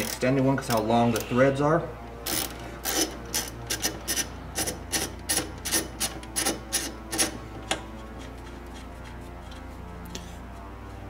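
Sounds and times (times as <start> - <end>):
socket ratchet clicking: 2.3 - 7.4.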